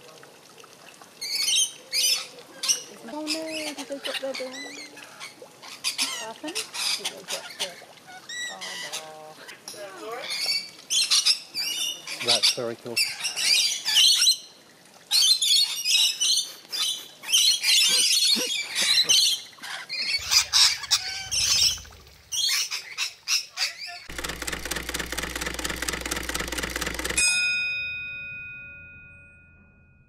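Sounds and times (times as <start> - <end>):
parrots screeching: 15.2 - 24.1
dense buzzing: 20.2 - 22.5
held tones: 24.1 - 29.6.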